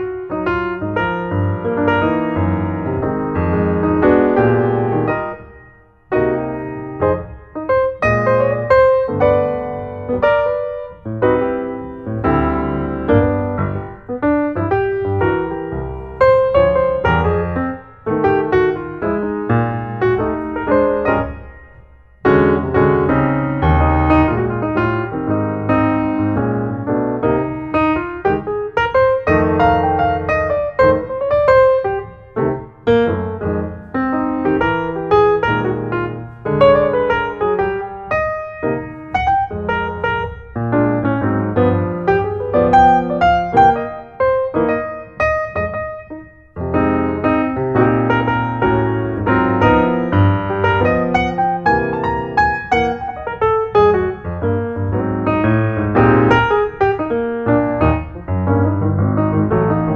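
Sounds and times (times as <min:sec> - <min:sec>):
piano chords: 0:00.0 - 0:59.9.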